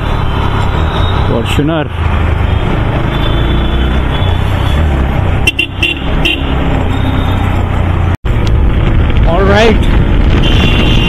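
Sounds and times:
motorcycle engine and wind rumble: 0.0 - 11.0
motorcycle horn toots: 3.1 - 7.6, 10.4 - 11.0.

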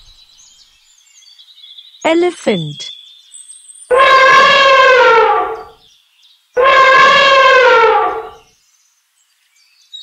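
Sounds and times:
elephant trumpeting: 3.9 - 5.8, 6.6 - 8.4.

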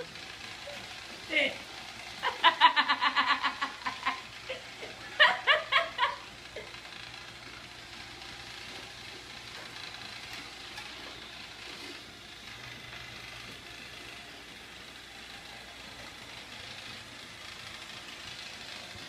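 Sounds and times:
robot vacuum cleaner running: 0.0 - 19.0
person laughing: 2.2 - 6.7.

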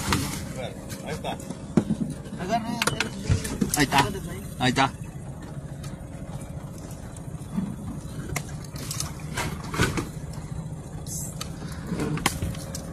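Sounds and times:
boat engine idling: 0.0 - 12.9.

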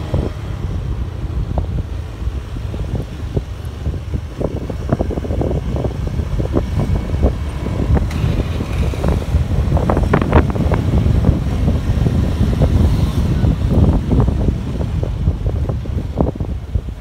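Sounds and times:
wind buffeting microphone: 0.0 - 17.0
scooter engine running: 5.5 - 13.6.

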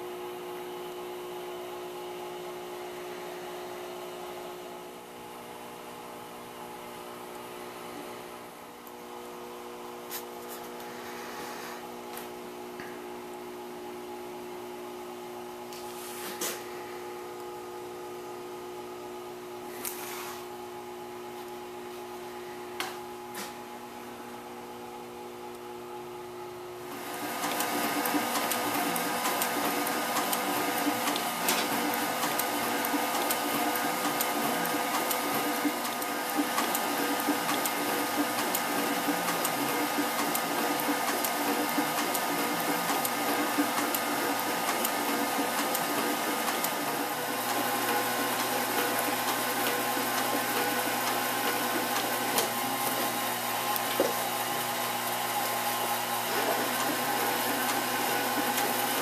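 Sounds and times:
sewing machine stitching leather: 27.0 - 54.2, 55.4 - 59.0.

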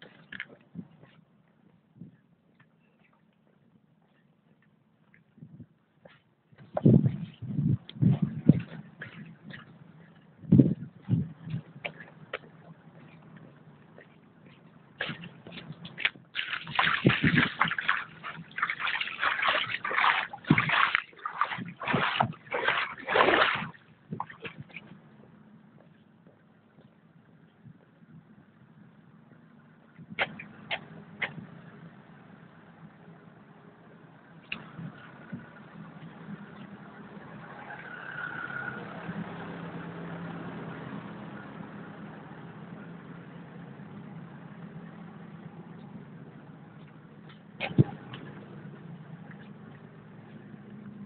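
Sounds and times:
vehicle engine humming: 0.0 - 51.0
splashing through puddle water: 15.0 - 25.0, 30.2 - 31.4, 47.4 - 51.0.

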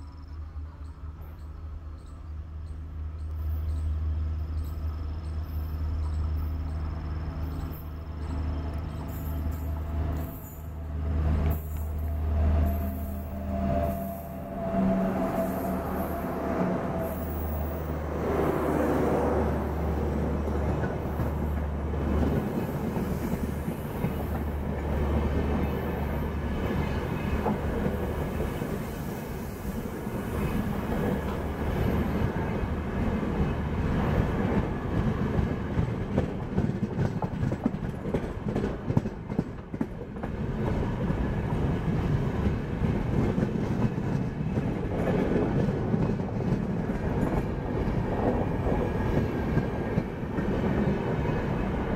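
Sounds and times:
train wheels clattering over joints: 33.4 - 41.2.

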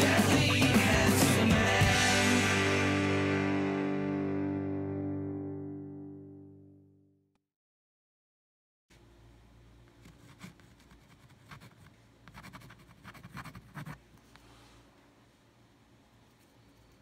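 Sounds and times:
low steady hum: 8.9 - 17.0
pen scratching on paper: 10.0 - 14.0.

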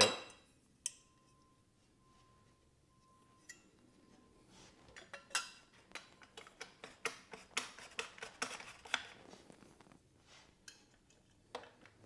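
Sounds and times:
metal pipe clinking and scraping: 4.9 - 8.6.

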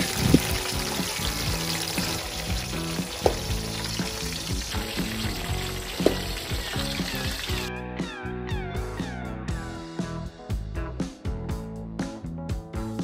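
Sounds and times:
frying-like hiss: 0.0 - 7.7
background music: 0.0 - 13.0
metal ladle knocking on pot: 3.2 - 3.6, 6.0 - 6.5.

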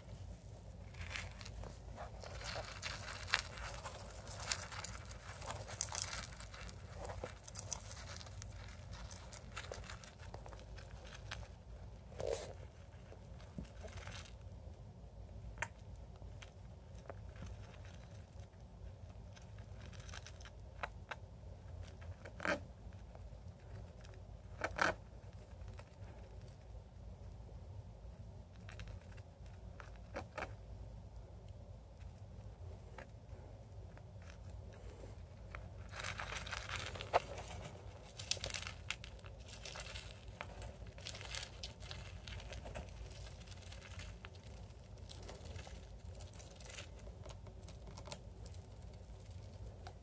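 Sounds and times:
crackling scrape: 0.0 - 14.5, 32.0 - 50.0
rodent scratching in bedding: 0.0 - 14.5, 34.2 - 50.0
low steady hum: 0.0 - 50.0.

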